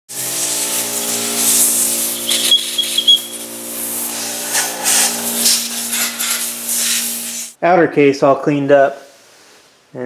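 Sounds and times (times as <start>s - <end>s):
air blow gun hissing: 0.1s - 7.6s
short high squeaks: 2.0s - 3.4s.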